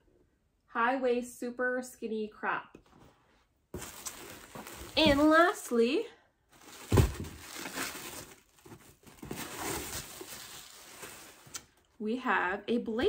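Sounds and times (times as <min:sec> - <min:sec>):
packaging and fabric rustling: 0:03.8 - 0:05.8, 0:06.5 - 0:11.8
thump: 0:06.9 - 0:07.4.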